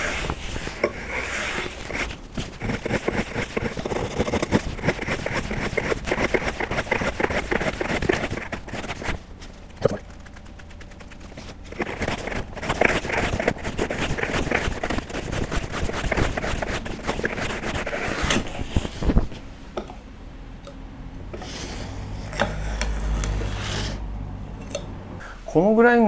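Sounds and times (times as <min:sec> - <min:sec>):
hand saw cutting wood: 0:00.0 - 0:09.1.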